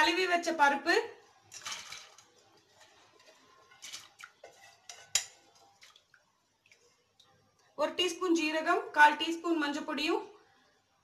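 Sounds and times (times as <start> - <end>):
metal bowl clinking on pot: 1.5 - 5.7.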